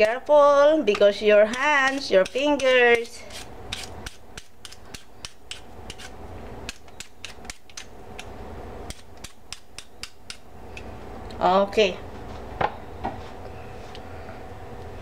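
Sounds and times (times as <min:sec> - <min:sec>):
peeler scraping sweet potato: 0:00.0 - 0:08.3.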